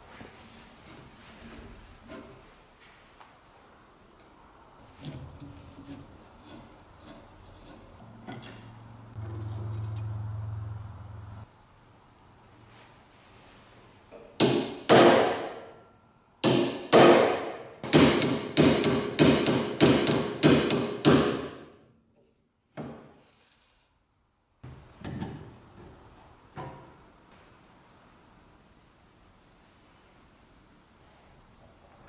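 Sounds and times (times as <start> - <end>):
hammer striking metal punch: 14.3 - 15.7, 16.4 - 21.6.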